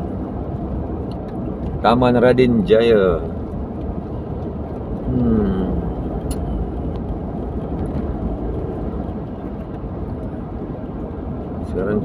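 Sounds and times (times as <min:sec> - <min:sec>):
car driving on road: 0:00.0 - 0:12.0
person humming: 0:05.1 - 0:06.0.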